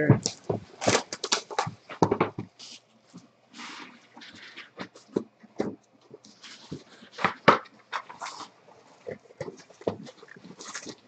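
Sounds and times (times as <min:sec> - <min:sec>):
cardboard rubbing and sliding: 0:03.5 - 0:05.7, 0:06.3 - 0:08.6.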